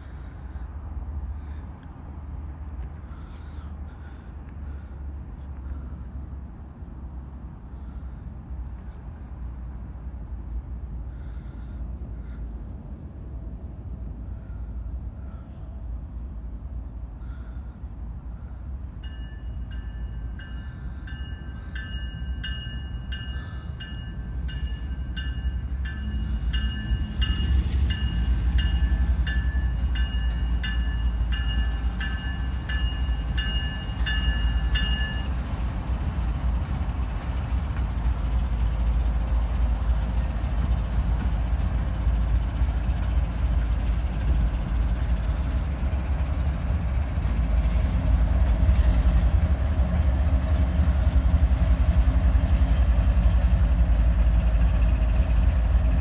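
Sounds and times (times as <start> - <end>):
diesel locomotive engine rumble: 0.0 - 56.0
locomotive bell ringing: 19.0 - 35.5.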